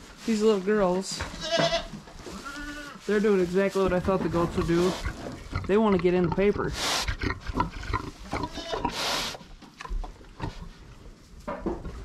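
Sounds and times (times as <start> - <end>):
rustling in paper bedding: 2.2 - 5.0
pig grunting: 4.4 - 9.4.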